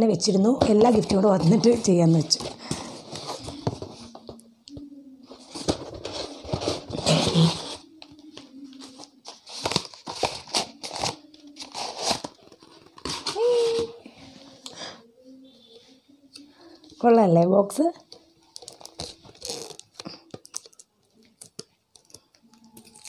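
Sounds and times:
cardboard rustling and crinkling: 0.6 - 4.4, 5.3 - 14.0.

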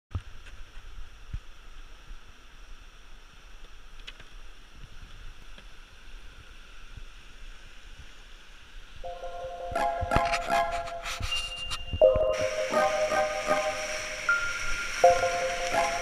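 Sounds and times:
river rapids rushing: 9.1 - 16.0.

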